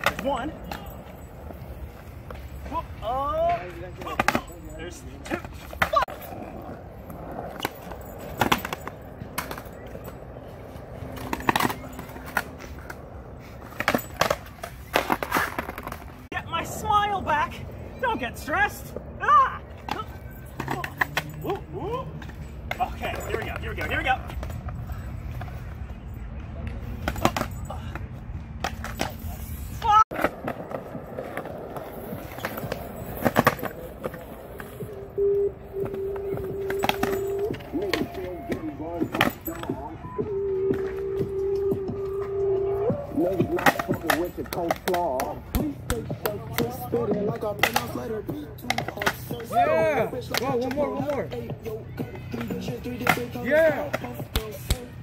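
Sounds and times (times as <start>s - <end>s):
skateboard clacking on concrete: 0.0s - 2.4s, 3.4s - 4.6s, 5.3s - 16.3s, 19.8s - 21.6s, 30.1s - 34.8s, 35.8s - 39.9s, 43.1s - 55.0s
skateboard knocking on concrete: 43.3s - 49.6s.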